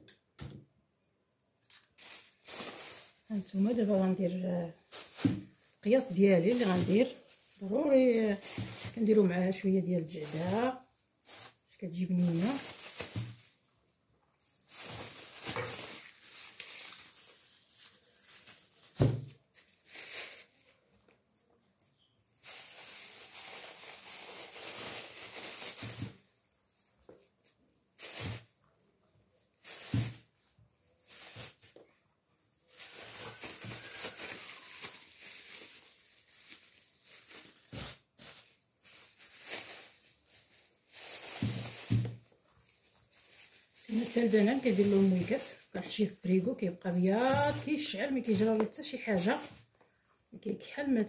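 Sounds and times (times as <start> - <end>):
plastic bags crinkling: 1.4 - 51.0.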